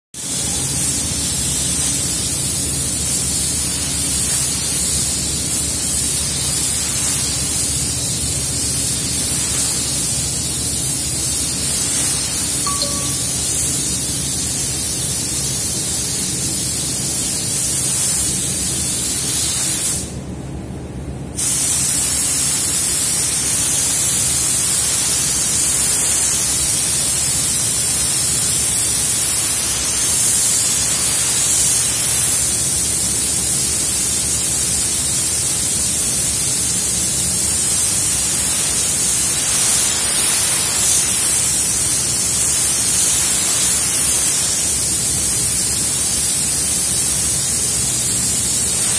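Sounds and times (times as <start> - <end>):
spray gun hissing: 0.2 - 20.2, 21.4 - 48.9.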